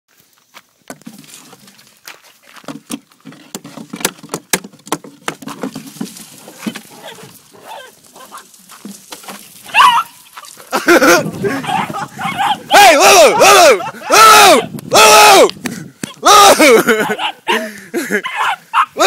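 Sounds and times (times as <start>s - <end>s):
footsteps crunching on gravel: 0.1s - 4.0s, 5.1s - 12.7s.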